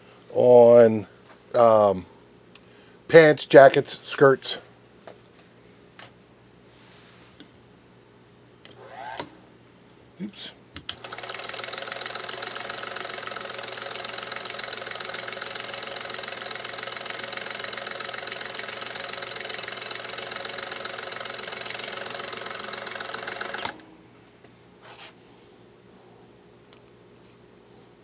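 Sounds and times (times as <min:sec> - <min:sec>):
sewing machine motor running: 0:11.0 - 0:23.8.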